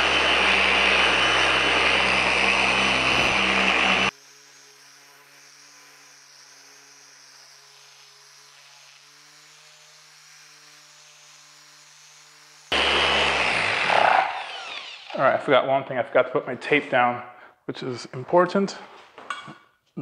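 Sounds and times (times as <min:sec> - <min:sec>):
car polisher running: 0:00.0 - 0:15.3.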